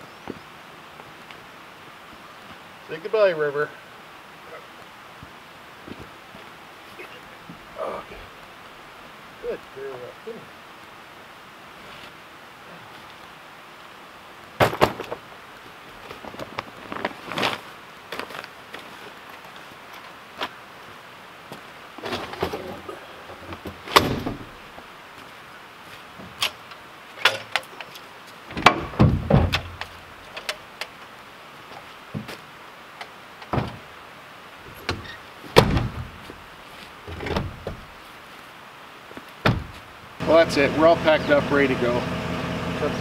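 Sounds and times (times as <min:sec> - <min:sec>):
gear being packed into truck bed: 0:22.0 - 0:24.6
truck door shutting: 0:23.8 - 0:24.6, 0:28.5 - 0:29.9, 0:34.8 - 0:36.2, 0:37.1 - 0:37.8, 0:39.4 - 0:39.8.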